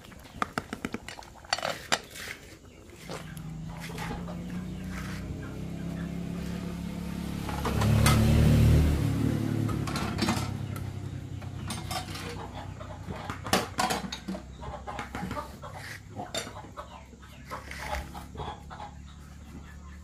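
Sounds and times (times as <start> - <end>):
chickens clucking: 0.0 - 20.0
low engine drone: 3.0 - 13.1
clinks and knocks: 9.8 - 10.8, 11.4 - 12.6, 13.3 - 15.1.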